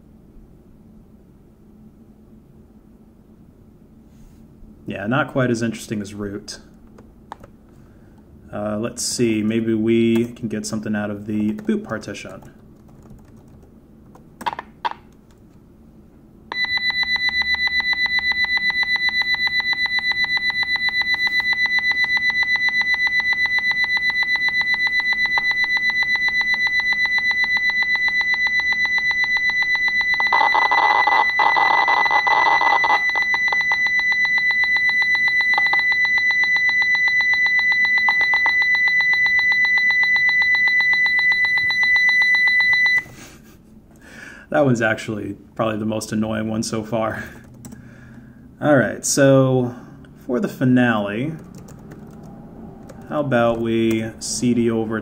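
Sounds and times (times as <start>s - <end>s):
high-pitched pulsing electronic tone: 16.5s - 43.0s.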